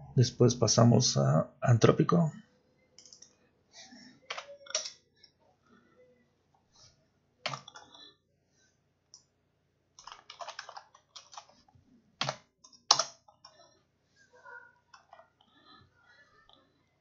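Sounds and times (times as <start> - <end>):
keyboard key presses: 7.5 - 7.9, 10.0 - 11.5, 12.2 - 13.2.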